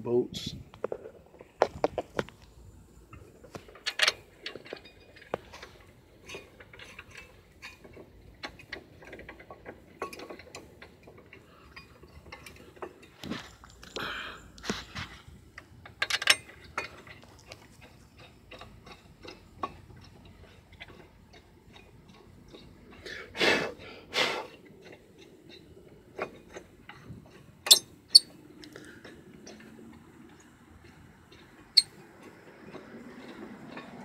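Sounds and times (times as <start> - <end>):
metal bolts clicking: 3.5 - 13.2, 15.6 - 23.1, 24.8 - 28.4, 30.3 - 34.0.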